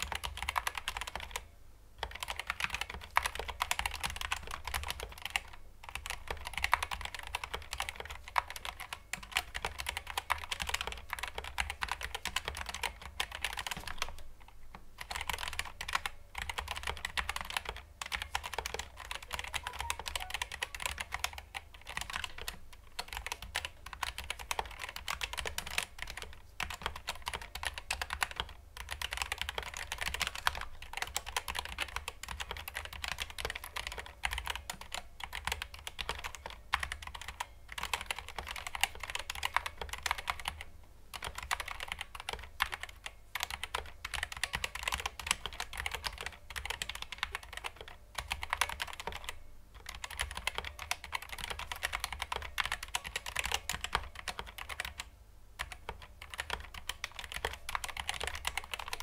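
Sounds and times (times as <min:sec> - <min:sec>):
keyboard typing clacks: 0:00.0 - 0:14.2, 0:15.0 - 0:59.0.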